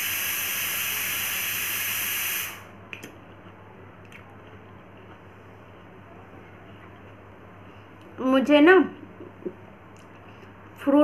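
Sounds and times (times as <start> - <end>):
loud steady hiss: 0.0 - 2.8.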